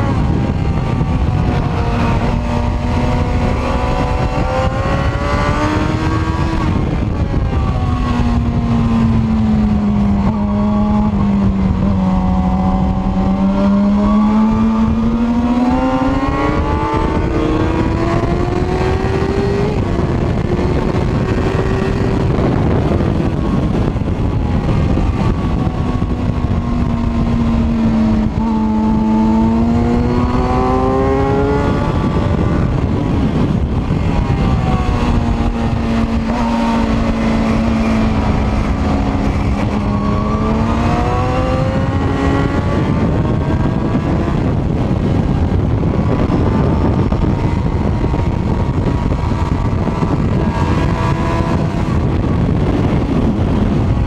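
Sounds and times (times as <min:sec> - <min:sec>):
motorcycle engine revving: 0:00.0 - 0:54.0
wind rushing: 0:00.0 - 0:54.0.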